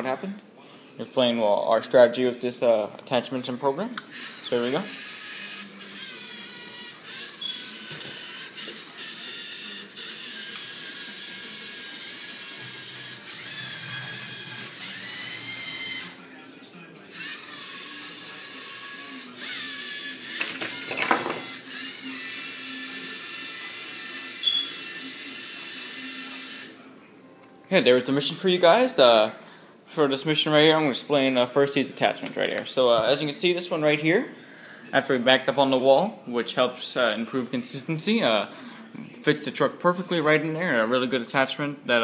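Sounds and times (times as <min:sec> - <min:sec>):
gears whirring: 0:04.1 - 0:16.2, 0:17.1 - 0:26.7
robot motors whining: 0:04.1 - 0:16.2, 0:17.1 - 0:26.7.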